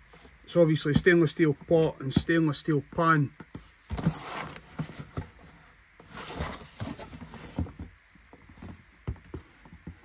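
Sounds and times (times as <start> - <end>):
cardboard rustling and scraping: 3.4 - 10.0.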